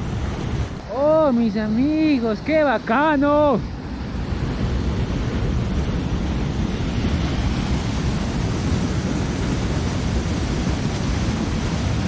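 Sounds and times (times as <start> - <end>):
river rushing over rapids: 0.0 - 12.0.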